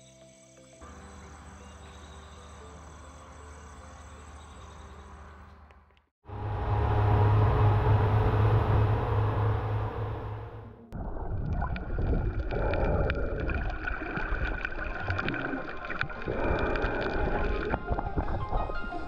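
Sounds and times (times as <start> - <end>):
outboard motors running: 6.3 - 11.0
muffled underwater sound: 11.0 - 19.0.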